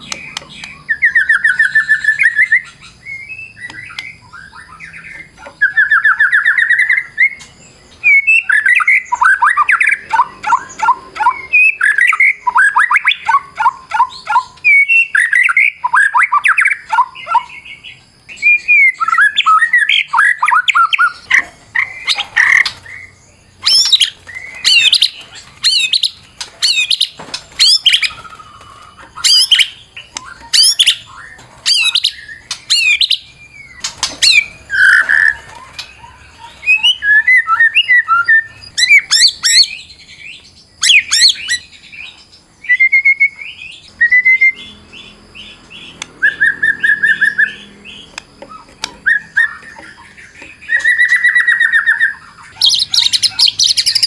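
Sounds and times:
songbird singing varied song: 0.0 - 54.0.

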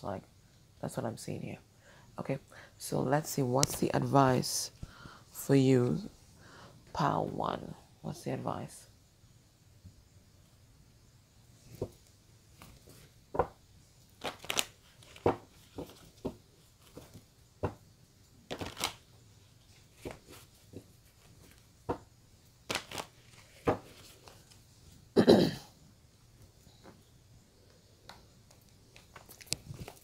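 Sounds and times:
cards shuffled by hand: 11.7 - 17.8, 18.5 - 19.1, 19.8 - 22.0, 22.6 - 24.7, 28.5 - 30.0.

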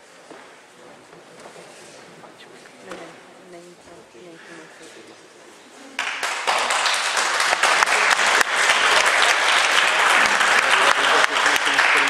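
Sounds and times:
audience applauding: 6.0 - 12.0.

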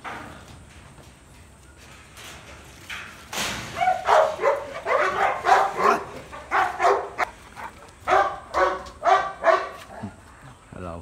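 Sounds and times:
dog barking: 3.8 - 10.0.

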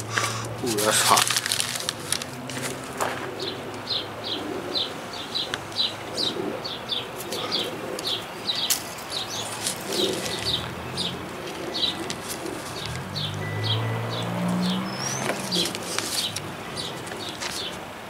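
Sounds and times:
plastic wrapper crinkling: 0.7 - 2.9, 15.2 - 17.6
small songbird chirping: 3.4 - 17.7.

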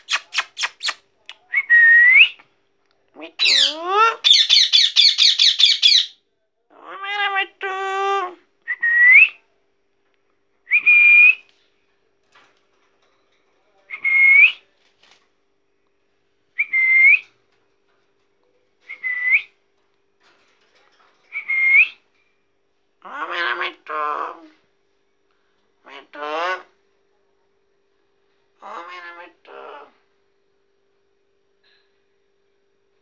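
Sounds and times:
buzzy parakeet call: 0.0 - 1.0, 3.4 - 6.2
parakeet whistling: 16.6 - 17.2, 18.9 - 19.5, 21.3 - 22.0.

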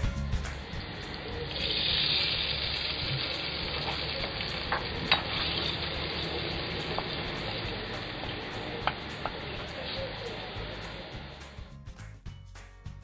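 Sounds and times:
oil sizzling in a wok: 0.0 - 11.7
spatula stirring: 1.5 - 10.5.

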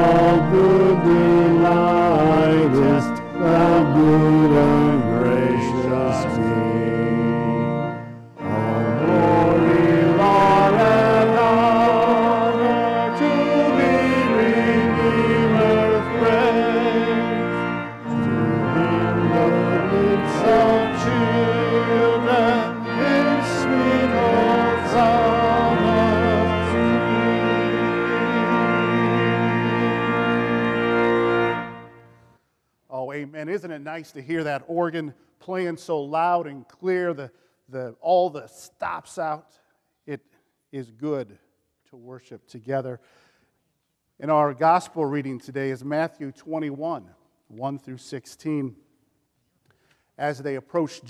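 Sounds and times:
people singing a hymn: 0.0 - 31.4
loud church organ: 0.0 - 39.4, 44.2 - 48.8, 50.2 - 51.0.

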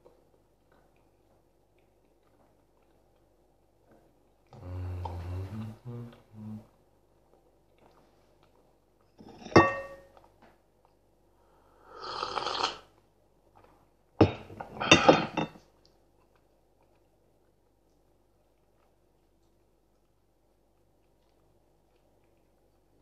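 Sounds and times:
ceramic mug clinking: 9.3 - 10.1
slurping sips of tea: 11.8 - 12.9.

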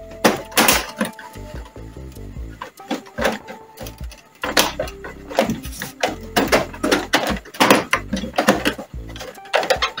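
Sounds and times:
plastic knocks and clicks: 2.6 - 10.0.

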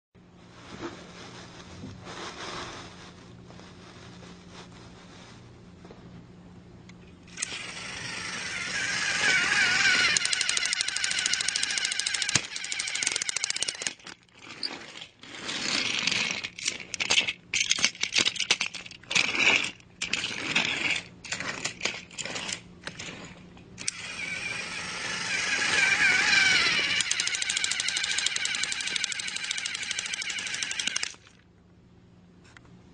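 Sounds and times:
fast mechanical rattling: 7.3 - 23.2, 23.8 - 31.4.

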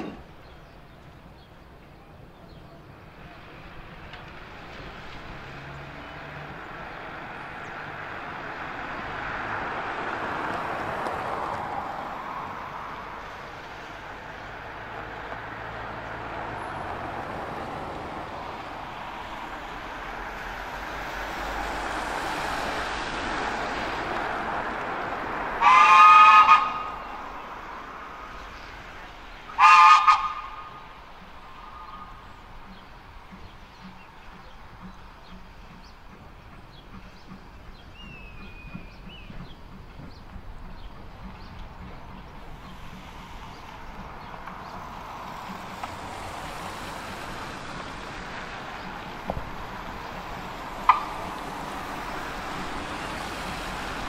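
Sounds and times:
outdoor rumble of train: 0.0 - 54.0
steam locomotive whistle: 25.6 - 27.2, 29.5 - 30.8, 50.8 - 51.3.

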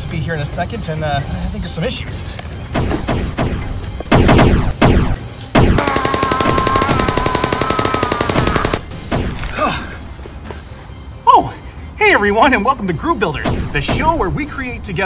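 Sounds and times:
machine-gun fire: 3.1 - 9.3.

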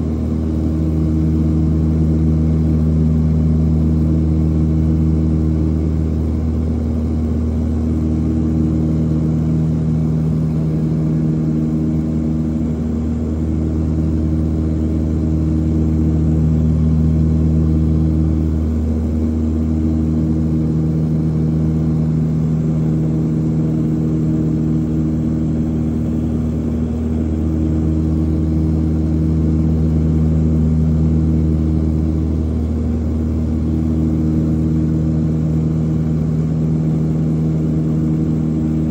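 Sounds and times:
propeller plane engines droning: 0.0 - 38.9.

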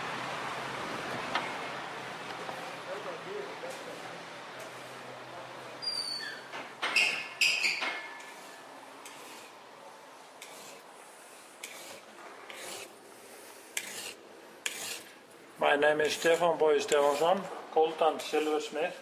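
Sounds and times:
file rasping on metal: 10.4 - 10.8, 11.6 - 12.9, 13.7 - 15.1, 16.0 - 17.4, 18.2 - 18.7.

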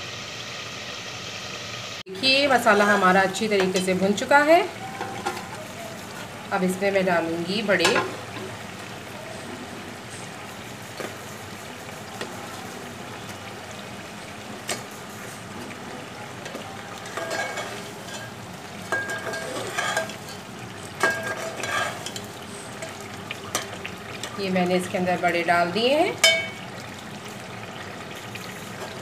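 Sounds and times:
spices sizzling in hot oil: 0.0 - 29.0
metal spoon scraping pot: 17.0 - 18.3, 18.9 - 20.4, 21.0 - 23.7.

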